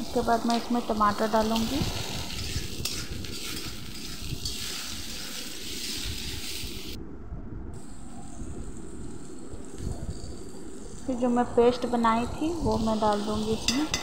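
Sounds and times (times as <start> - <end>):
spatula scraping wok: 0.0 - 7.0
vegetables sizzling in oil: 0.0 - 7.0, 7.8 - 14.0.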